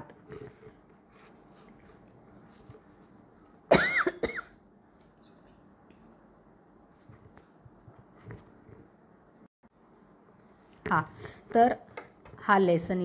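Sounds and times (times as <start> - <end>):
person coughing: 3.7 - 4.6.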